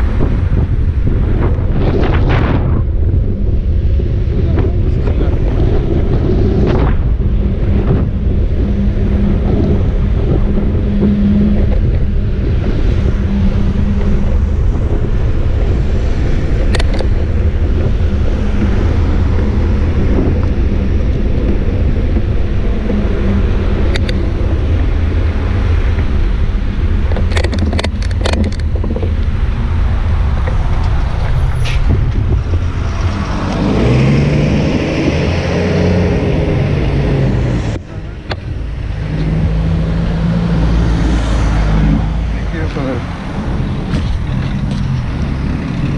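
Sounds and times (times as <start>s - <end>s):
car traffic: 0.0s - 45.9s
wind rumble on microphone: 0.0s - 45.9s
vehicle engine rising in pitch: 29.4s - 45.9s.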